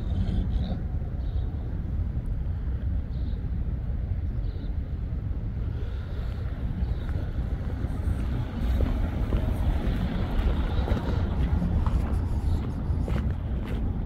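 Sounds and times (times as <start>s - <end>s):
wind buffeting microphone: 0.0s - 14.0s
footsteps on dirt and gravel: 6.9s - 14.0s.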